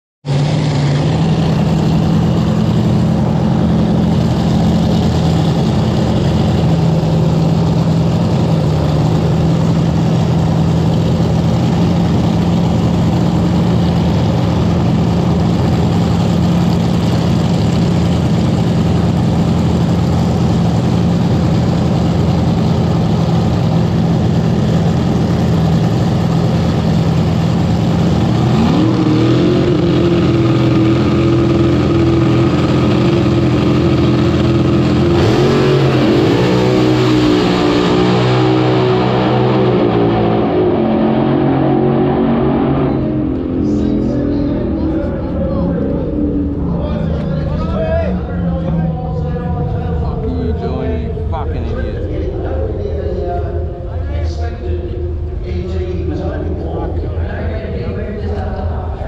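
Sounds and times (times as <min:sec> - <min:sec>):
dragster engine idling and revving: 0:00.2 - 0:59.0.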